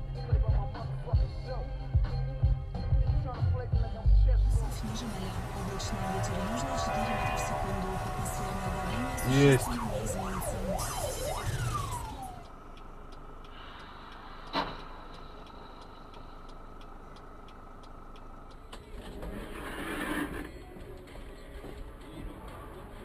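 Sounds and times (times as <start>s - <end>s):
road noise: 4.5s - 23.0s
fire engine siren wailing: 4.6s - 13.1s
faint regular ticking: 4.6s - 20.0s.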